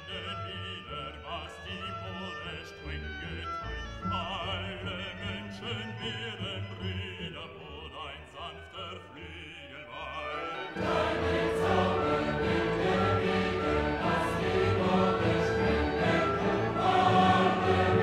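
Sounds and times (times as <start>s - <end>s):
operatic voice singing: 0.0s - 18.0s
orchestral music: 9.9s - 18.0s
choir singing: 10.1s - 18.0s.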